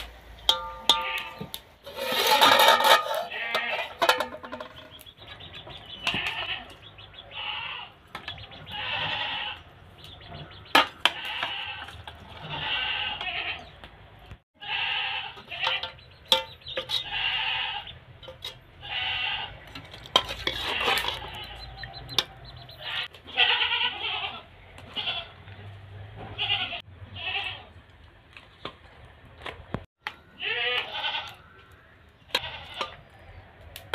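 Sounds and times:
metal ladle clinking on pots: 0:00.4 - 0:05.0, 0:15.4 - 0:17.1, 0:19.7 - 0:21.4
goat bleating: 0:06.0 - 0:08.0, 0:08.7 - 0:09.7, 0:11.2 - 0:13.7, 0:14.6 - 0:15.8, 0:17.0 - 0:17.9, 0:18.8 - 0:19.6, 0:22.7 - 0:25.4, 0:26.3 - 0:27.7, 0:30.4 - 0:31.4.

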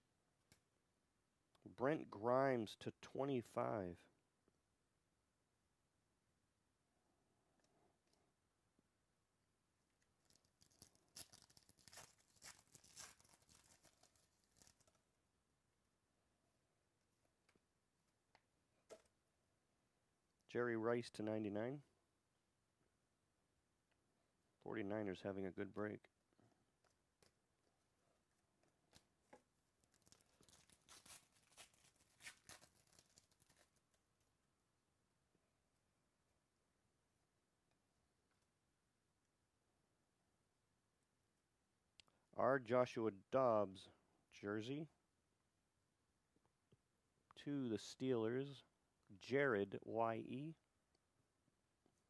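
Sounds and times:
foil wrapper crinkling: 0:10.2 - 0:15.0, 0:29.8 - 0:34.0.

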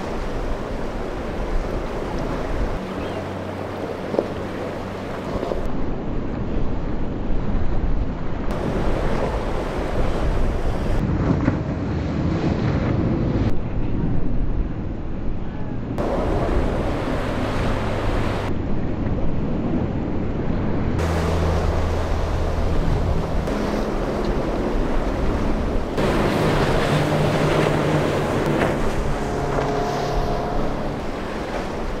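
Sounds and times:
waves rushing: 0:00.0 - 0:06.0, 0:08.4 - 0:13.5, 0:16.0 - 0:18.9, 0:20.7 - 0:32.0
powerboat engine hum: 0:00.0 - 0:07.2, 0:08.1 - 0:32.0
wind on microphone: 0:00.0 - 0:32.0
hull spray: 0:16.0 - 0:18.5, 0:21.0 - 0:32.0.

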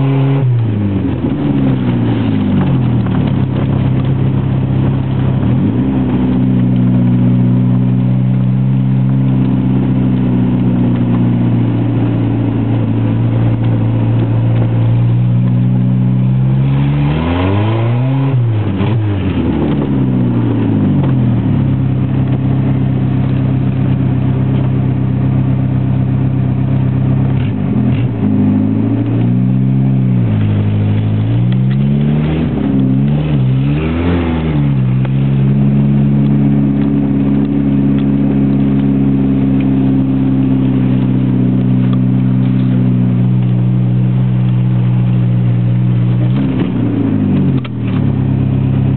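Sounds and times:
car engine revving: 0:00.0 - 0:48.9.

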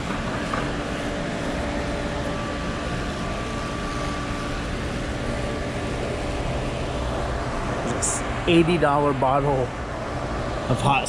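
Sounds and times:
indoor store rushing hum: 0:00.0 - 0:11.0.

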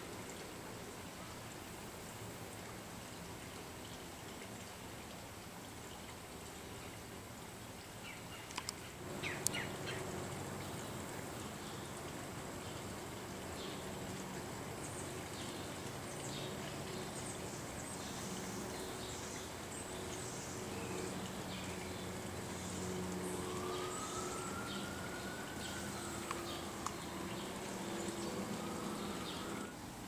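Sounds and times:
long rising tone: 0:22.7 - 0:29.8.

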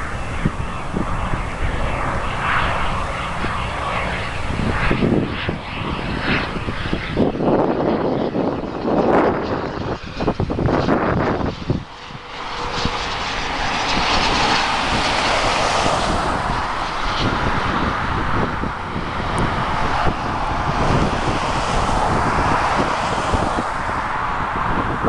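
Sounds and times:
jet engine rush: 0:00.0 - 0:25.0
wind buffeting microphone: 0:00.0 - 0:25.0.

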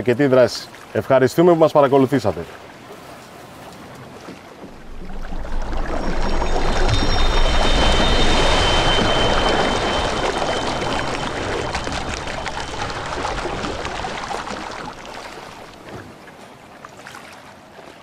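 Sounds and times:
water splashing and pouring: 0:02.5 - 0:16.3.

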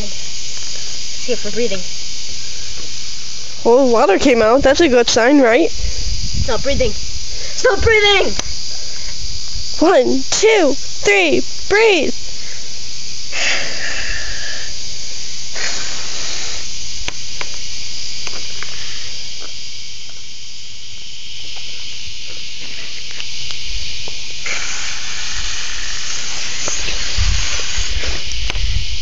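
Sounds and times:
water hissing from garden hose: 0:13.3 - 0:14.7, 0:15.5 - 0:16.7, 0:24.3 - 0:28.8.

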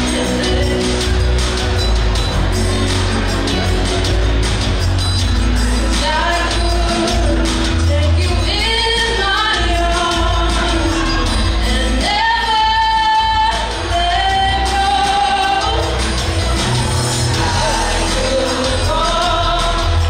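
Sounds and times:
woman singing into microphone: 0:00.0 - 0:01.3, 0:05.8 - 0:16.4, 0:17.2 - 0:20.0
instrumental music with bass: 0:00.0 - 0:20.0.

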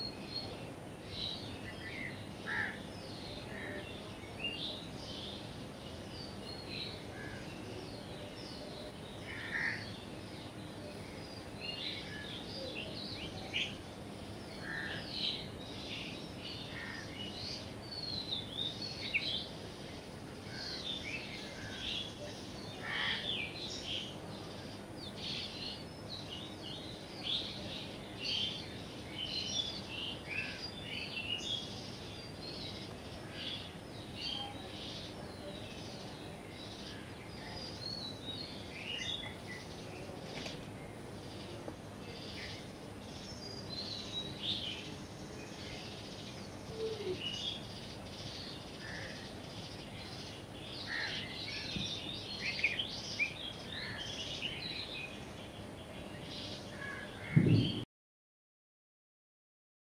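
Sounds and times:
small birds chirping: 0:00.0 - 0:57.8
steady background hiss: 0:00.0 - 0:57.8.

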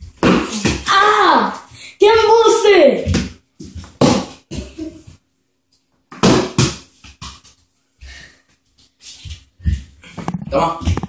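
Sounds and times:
breathing: 0:01.7 - 0:02.0, 0:07.9 - 0:08.6.

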